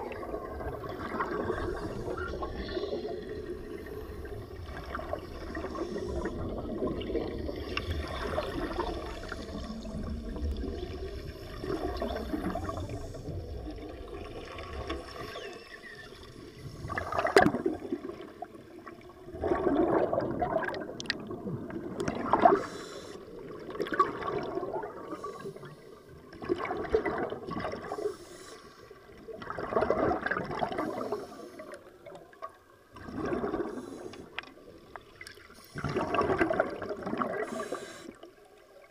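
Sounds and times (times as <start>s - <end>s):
exhaled breath bubbles: 0.0s - 15.6s, 16.6s - 18.5s, 29.4s - 31.9s, 33.0s - 34.6s, 35.4s - 38.3s.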